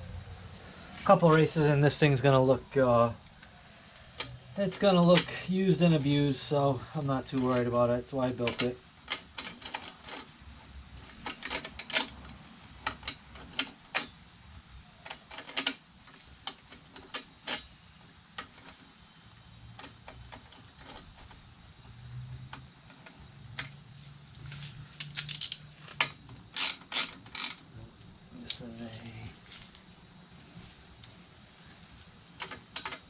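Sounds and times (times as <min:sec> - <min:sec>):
hand ratchet clicking: 0:24.5 - 0:27.6.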